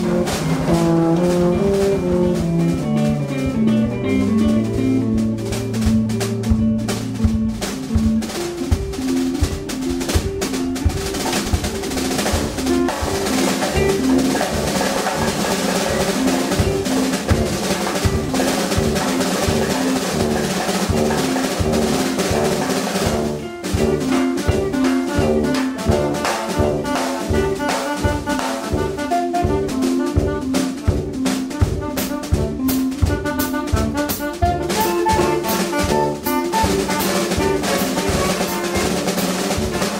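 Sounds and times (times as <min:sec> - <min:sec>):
cymbals: 0:00.0 - 0:39.9
drum kit with snare rolls: 0:00.0 - 0:39.9
electric guitar: 0:00.0 - 0:39.9
tuba: 0:00.0 - 0:39.9.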